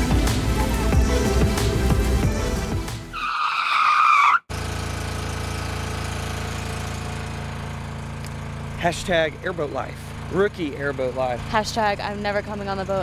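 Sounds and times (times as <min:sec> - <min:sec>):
background music: 0:00.0 - 0:03.2
airboat engine idling: 0:04.6 - 0:13.0.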